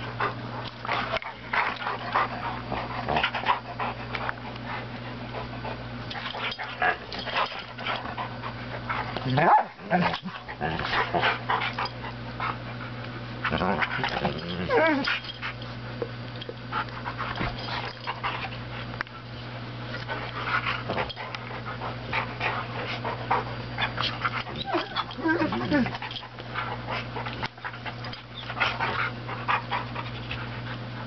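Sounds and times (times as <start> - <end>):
dogs panting: 0.0 - 31.0
dog whining: 13.5 - 15.2, 24.0 - 26.2.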